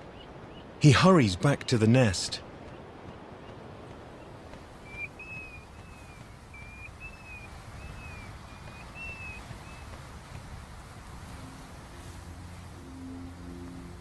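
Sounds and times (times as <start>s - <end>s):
bird whistling calls: 4.2s - 10.0s.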